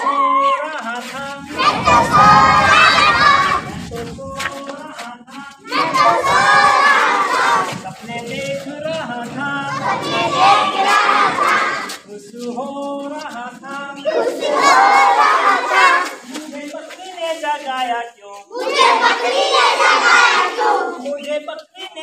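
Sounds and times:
children shouting and chanting: 0.0s - 4.7s, 5.4s - 12.1s, 13.8s - 17.2s, 18.4s - 21.4s
quieter voices: 0.0s - 12.2s.

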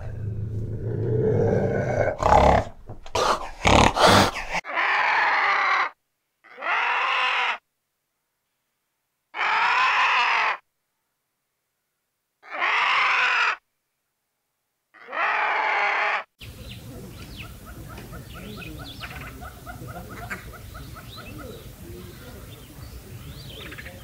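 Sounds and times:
cat growling: 0.0s - 5.4s
vulture harsh call: 9.4s - 10.6s, 12.4s - 13.6s, 17.3s - 22.8s.

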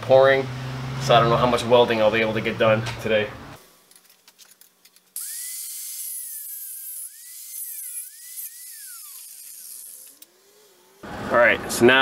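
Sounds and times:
rotary power tool whine: 5.2s - 11.8s.

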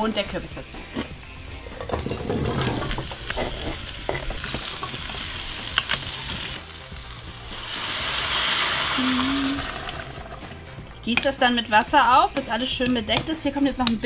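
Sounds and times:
vegetables sizzling in oil: 1.4s - 10.7s.

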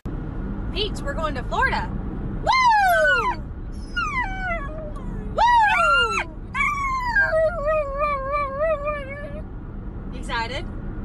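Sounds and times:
dog howling: 2.5s - 9.4s.

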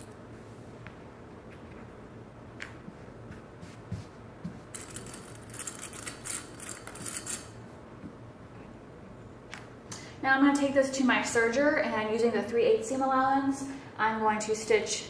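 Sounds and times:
fabric rustling and brushing: 2.9s - 4.7s.

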